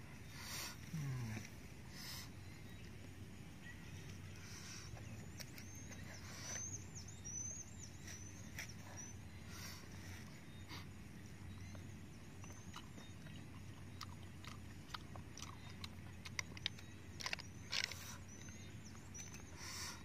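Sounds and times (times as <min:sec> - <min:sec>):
quiet chewing: 0:00.1 - 0:03.2, 0:03.8 - 0:20.0
snail shells clicking: 0:14.0 - 0:19.5.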